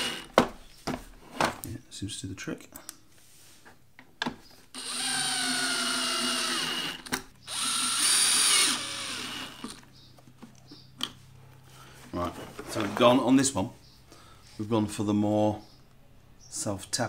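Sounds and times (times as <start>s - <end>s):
drill motor driving screws: 0.0s - 0.4s, 4.7s - 9.9s.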